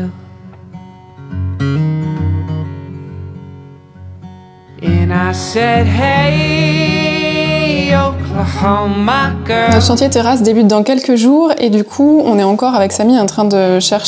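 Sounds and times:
person singing: 4.8 - 10.6
instrumental accompaniment with bass: 4.9 - 10.4.

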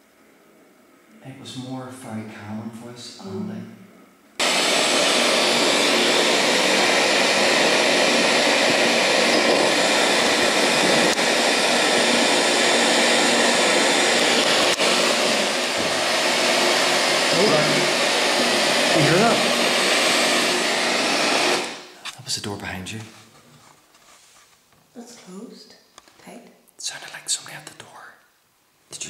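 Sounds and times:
radio static hiss: 4.4 - 19.9.

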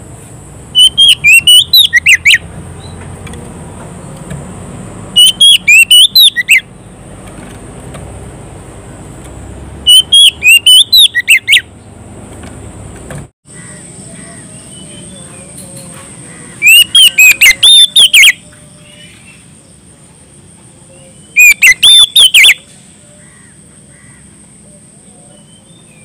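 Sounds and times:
bird singing whistled phrases: 0.8 - 3.0, 5.2 - 6.6, 9.9 - 11.6, 16.6 - 19.2, 20.9 - 22.7.

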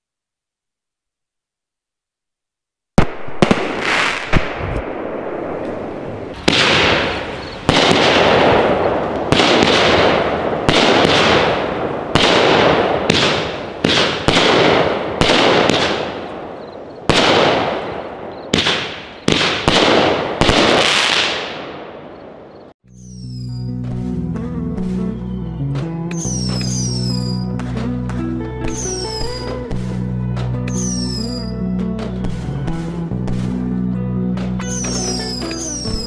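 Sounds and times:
firework crackles: 3.0 - 23.4, 26.2 - 27.2, 28.8 - 30.0
firework reports: 3.0 - 23.5, 28.7 - 29.9.

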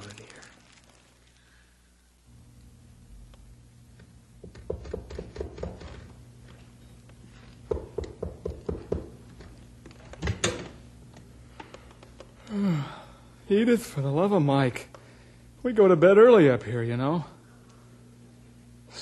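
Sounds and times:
low steady hum: 0.0 - 19.0
knocking on a door: 4.4 - 6.0, 7.7 - 9.2.

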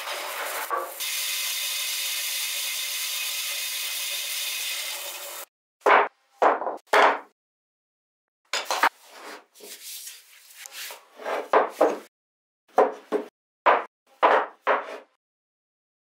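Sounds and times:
wooden blocks knocking on workbench: 5.8 - 7.3, 12.7 - 15.0.

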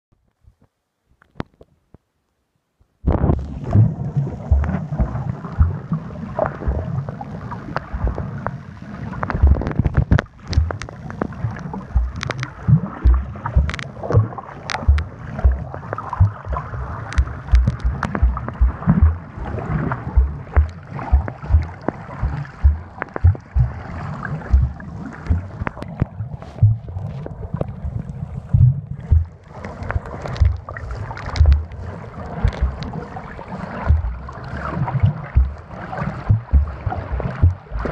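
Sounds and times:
low underwater thumps: 3.1 - 7.0, 9.2 - 33.1, 33.7 - 37.9
water gurgling: 3.1 - 37.9
sharp clicks: 12.1 - 12.5, 17.1 - 19.2.

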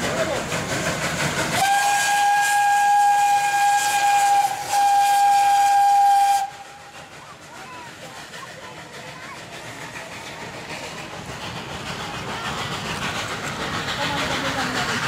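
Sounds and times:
steam hiss: 0.0 - 15.0
steam locomotive whistle blasts: 1.5 - 6.9
voices: 6.8 - 15.0.

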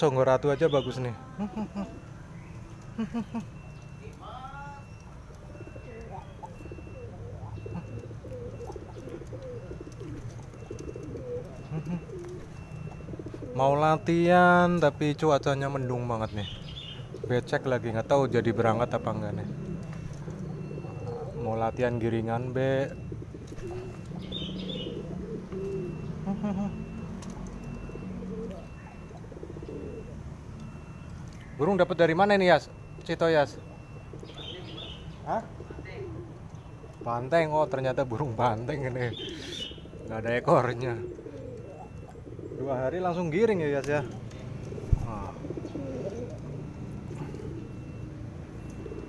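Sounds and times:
high-pitched pigeon call: 0.0 - 49.0
pigeons cooing: 0.0 - 49.0
short higher pigeon call: 39.1 - 39.9.

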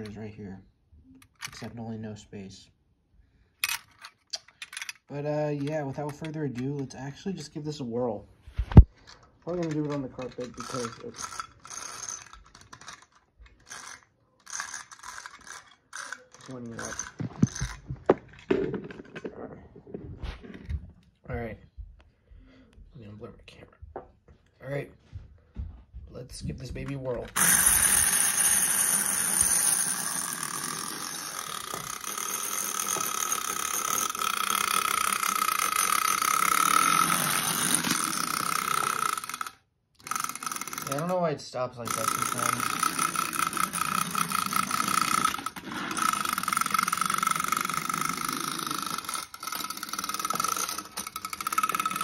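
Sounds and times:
wind-up toy ratcheting clicks: 3.6 - 7.5, 9.0 - 17.9, 26.8 - 52.0.

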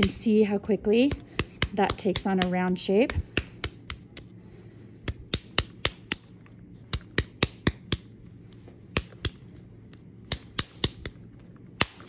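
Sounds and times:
hands slapping wet clay: 1.0 - 4.4, 5.0 - 8.2, 8.9 - 9.6, 10.2 - 11.2, 11.8 - 12.0.

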